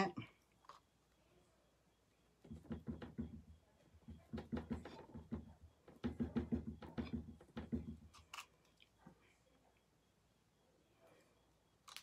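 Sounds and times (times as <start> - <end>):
paintbrush tapping on board: 2.4 - 8.1.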